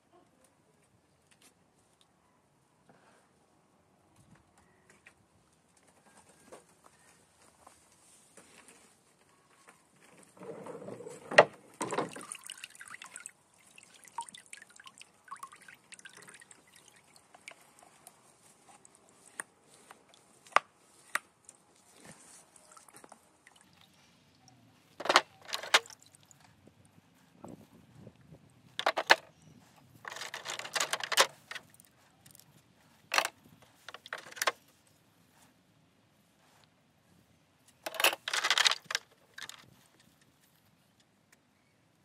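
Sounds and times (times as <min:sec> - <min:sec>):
liquid splashing and dripping: 0:11.8 - 0:18.2
metal parts clicking and knocking: 0:25.0 - 0:25.9, 0:28.8 - 0:29.3, 0:30.1 - 0:32.4, 0:33.9 - 0:34.6, 0:37.8 - 0:39.6.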